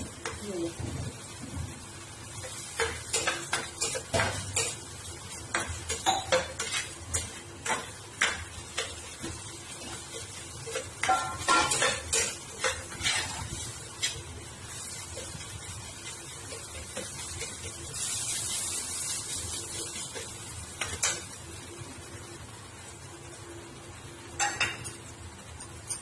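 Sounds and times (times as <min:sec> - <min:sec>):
metal spatula scraping a pan: 0:05.5 - 0:15.4.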